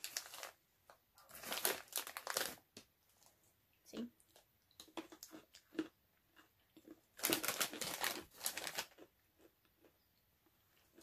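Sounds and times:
pretzels crackling: 0.0s - 0.6s, 1.2s - 2.8s, 4.8s - 9.9s.

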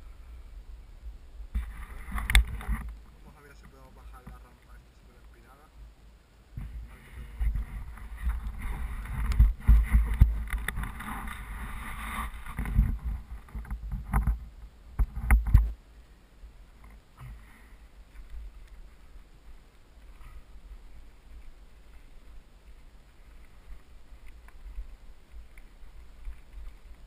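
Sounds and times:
faint low rustle: 0.0s - 27.0s
knocking and scraping on camera: 1.6s - 3.0s, 6.6s - 15.8s.

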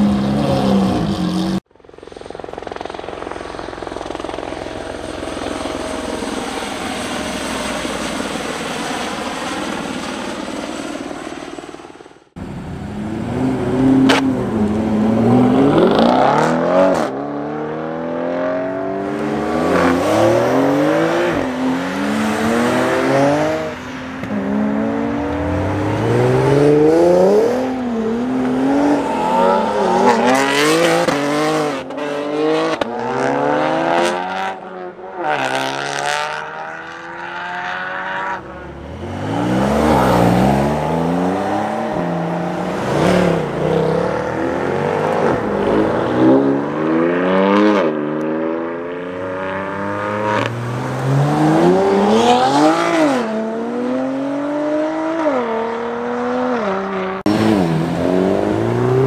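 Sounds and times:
sports cars accelerating past: 12.4s - 59.0s.

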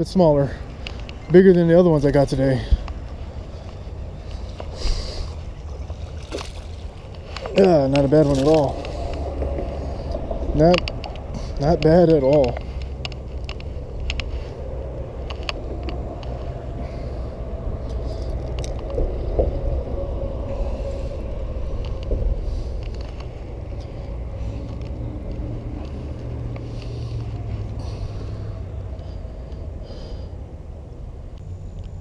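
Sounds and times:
handling clicks and rustles: 0.0s - 17.0s, 21.2s - 29.7s
low outdoor rumble: 0.0s - 32.0s.

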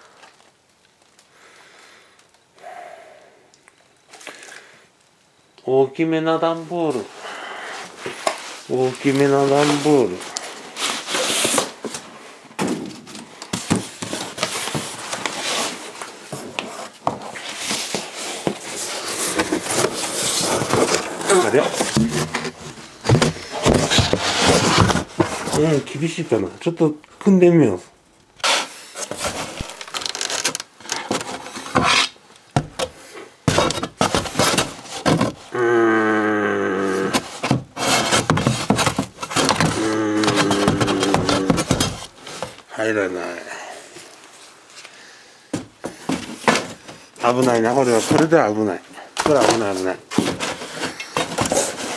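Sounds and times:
cardboard scraping and rustling: 7.8s - 26.4s, 28.4s - 35.6s, 36.8s - 42.7s, 45.6s - 51.9s
cardboard box dull thunks: 19.3s - 25.7s, 33.5s - 35.4s, 37.1s - 42.6s, 45.5s - 47.0s, 49.2s - 51.9s.

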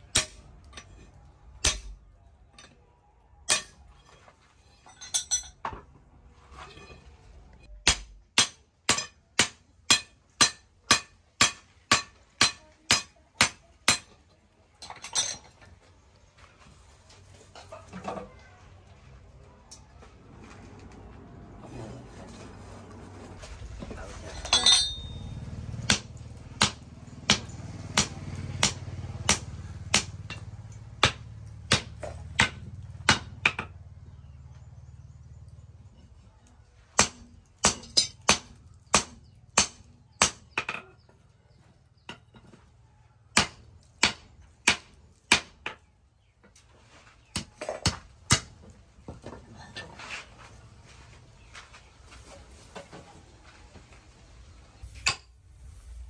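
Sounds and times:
hammer striking metal on anvil: 0.1s - 1.0s, 1.6s - 2.0s, 3.5s - 3.9s, 7.8s - 14.2s, 24.4s - 33.7s
metal clatter: 3.5s - 5.9s, 23.4s - 27.7s.

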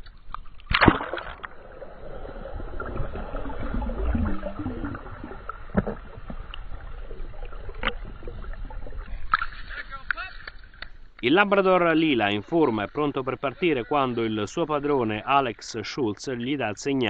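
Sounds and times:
underwater gurgling and bubbling: 0.8s - 9.3s
low underwater rumble: 0.8s - 9.8s.

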